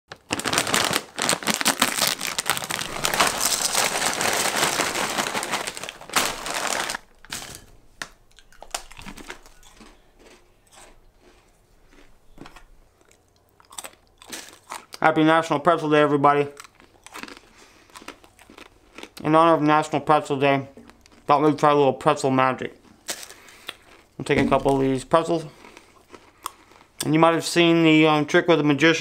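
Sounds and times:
plastic snack bag crinkling: 0.1s - 15.0s, 16.5s - 19.2s, 22.9s - 27.0s.

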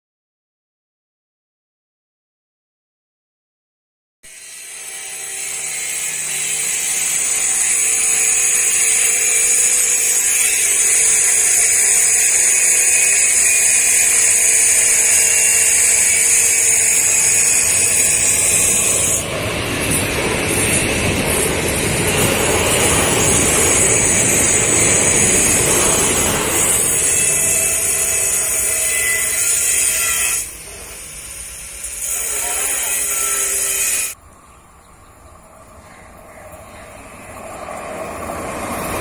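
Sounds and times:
electric train passing: 4.3s - 39.0s
high-pitched whine: 4.3s - 39.0s.

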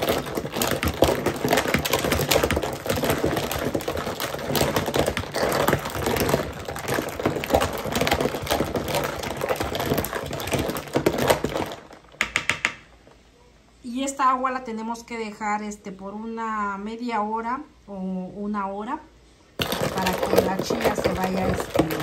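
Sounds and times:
spoon stirring ice in pitcher: 0.0s - 12.9s, 19.6s - 22.0s.

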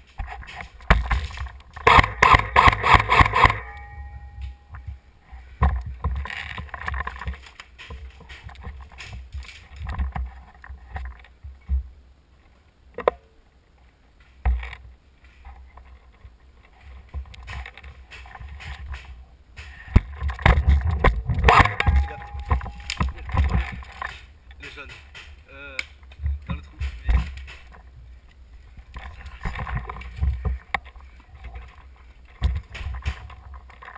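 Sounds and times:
footsteps crunching over rubble: 0.0s - 1.9s, 4.0s - 12.6s, 14.0s - 33.9s
sharp clicks and knocks: 17.0s - 27.9s.

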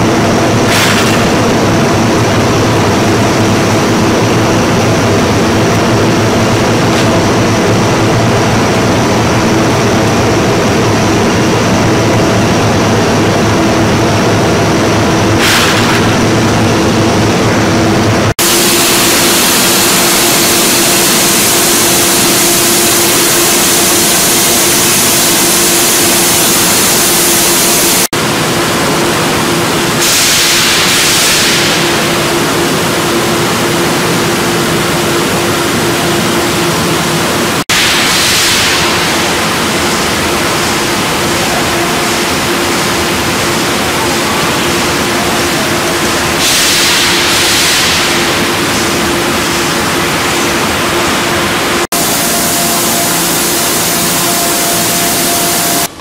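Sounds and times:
machinery hum: 0.0s - 56.0s
machinery hiss: 29.9s - 33.7s, 37.7s - 55.9s.

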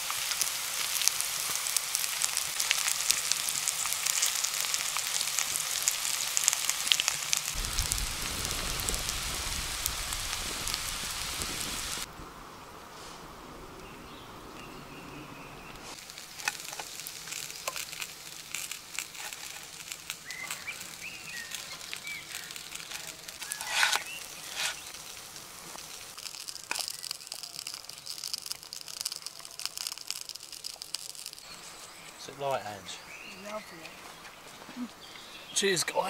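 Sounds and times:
food crackling and sizzling: 0.0s - 12.2s, 14.6s - 35.4s.

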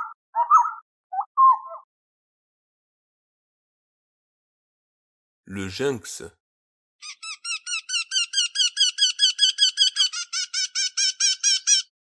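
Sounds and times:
bird calling high repeated notes: 0.0s - 1.9s, 7.0s - 11.9s.

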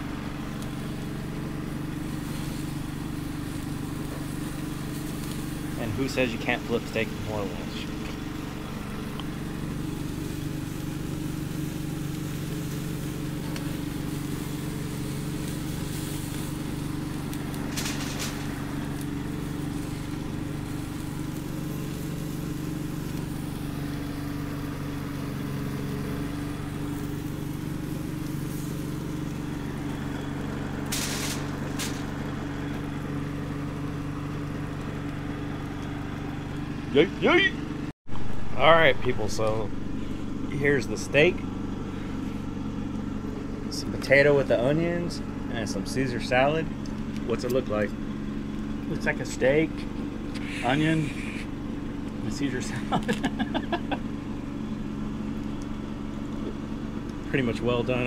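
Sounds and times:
small engine humming: 0.0s - 58.0s
brief hisses: 30.9s - 32.2s, 50.3s - 51.6s.

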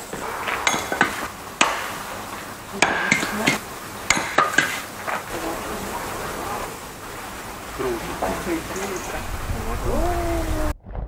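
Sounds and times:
axe chopping wood: 0.0s - 2.1s, 2.8s - 4.9s.

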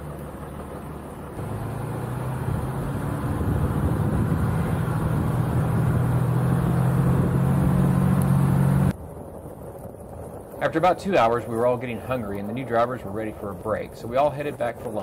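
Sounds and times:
tyres on gravel: 0.0s - 6.8s, 7.4s - 15.0s
car engine hum: 0.0s - 10.6s.

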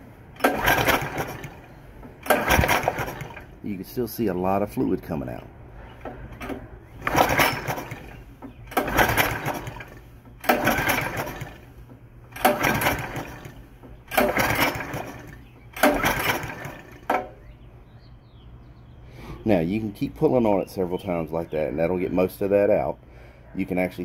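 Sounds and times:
engine turning over without firing: 0.3s - 3.6s, 5.8s - 17.4s
recoil starter cord pulled: 0.4s - 3.6s, 6.0s - 17.4s.

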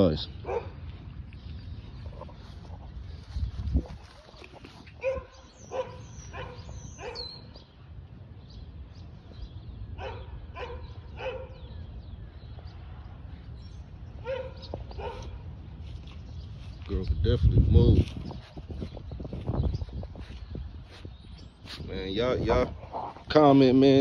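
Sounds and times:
puppy barking: 0.4s - 0.8s, 5.0s - 7.4s, 10.0s - 11.6s, 14.2s - 15.4s.

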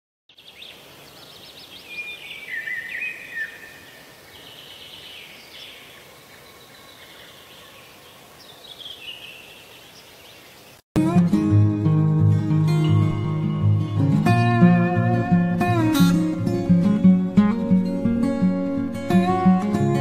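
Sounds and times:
songbirds chirping and singing: 0.3s - 10.8s
steady outdoor hiss: 0.3s - 10.8s.

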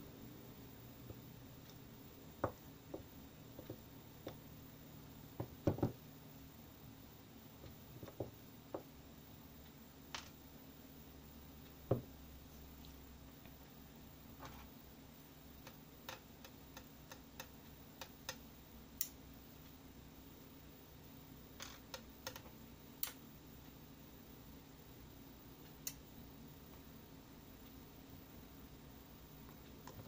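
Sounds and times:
sharp knock on wooden desk: 5.4s - 6.0s.

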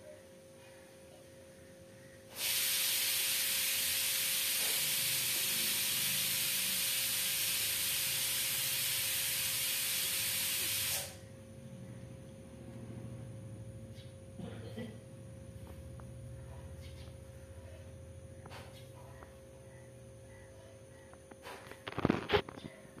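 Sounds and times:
loud steady hiss: 2.2s - 11.2s.

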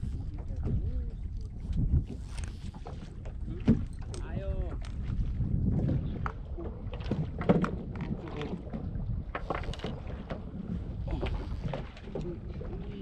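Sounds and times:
water slapping wooden boat: 0.0s - 13.0s
wind on microphone: 0.0s - 13.0s
boat and fishing gear knocks: 6.2s - 10.5s.

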